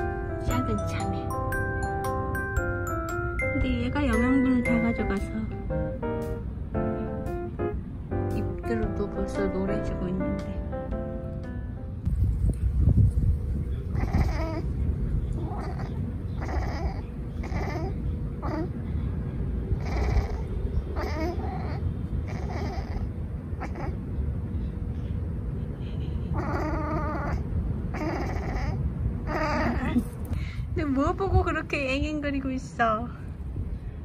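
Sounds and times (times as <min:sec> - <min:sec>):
low rumble: 0:00.0 - 0:16.4
cat chattering: 0:13.8 - 0:18.9, 0:19.7 - 0:24.2, 0:26.2 - 0:30.2.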